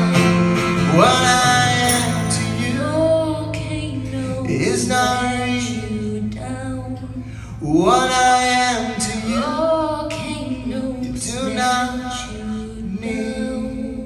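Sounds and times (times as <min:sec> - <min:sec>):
acoustic guitar: 0:00.0 - 0:14.0
man and woman singing a duet: 0:00.0 - 0:14.0
steady low hum: 0:00.8 - 0:14.0.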